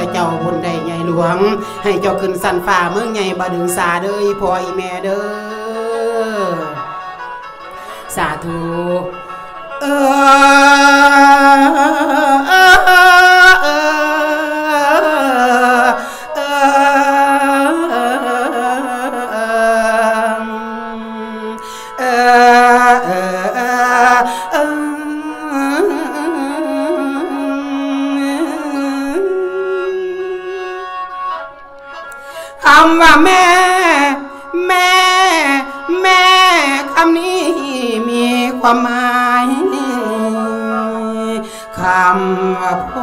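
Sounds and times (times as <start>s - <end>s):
mouth organ melody over drone: 0.0s - 2.8s.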